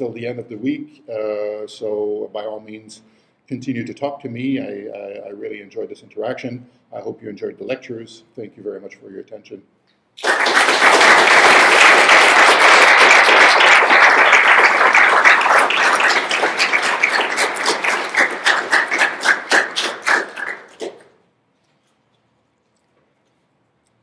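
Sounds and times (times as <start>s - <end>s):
audience applauding: 10.2s - 21.1s.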